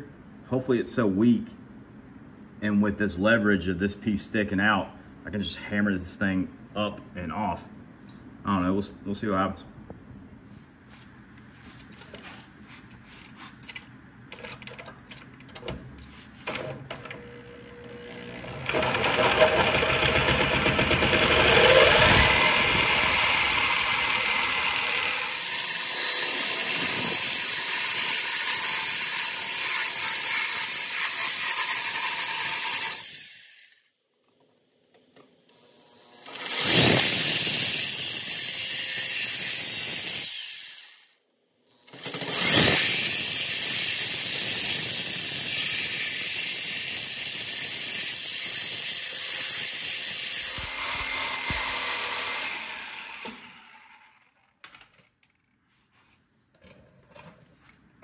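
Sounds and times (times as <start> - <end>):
reciprocating saw cutting steel: 17.2 - 33.9, 35.6 - 54.5.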